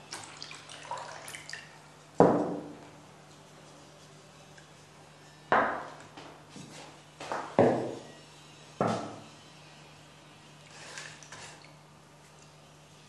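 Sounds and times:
water pouring and splashing: 0.0 - 1.8.

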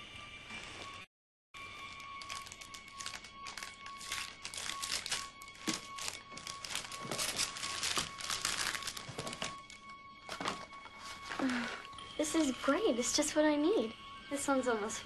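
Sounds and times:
wrapping paper tearing and crinkling: 1.8 - 9.8.

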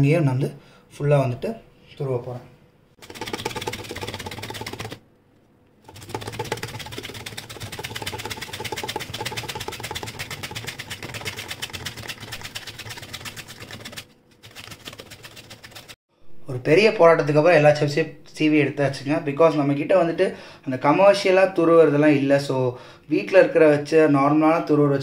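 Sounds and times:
root rasping on a grater: 3.0 - 5.0, 5.8 - 16.0.

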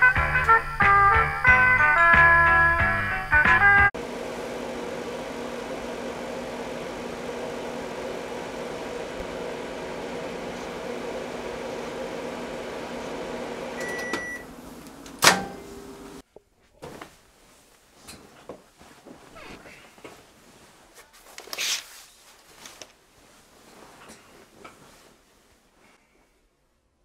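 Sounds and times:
microwave oven humming: 4.0 - 16.2
microwave beep: 13.5 - 14.5.

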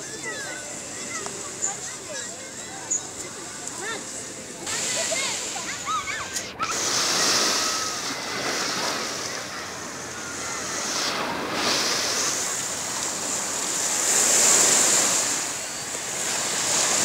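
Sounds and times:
faint voices of bathers: 0.0 - 17.0
small waves breaking on sand: 4.6 - 17.0.

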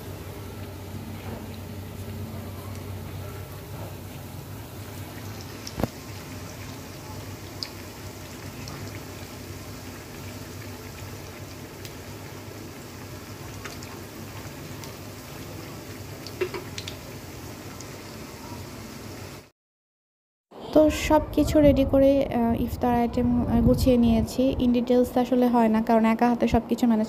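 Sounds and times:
food deep-frying in hot oil: 0.0 - 19.5.

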